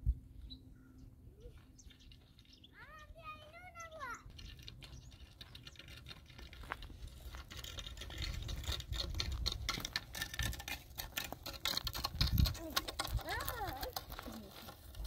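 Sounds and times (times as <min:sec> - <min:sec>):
footsteps crunching on twiggy dirt: 0:01.5 - 0:07.8.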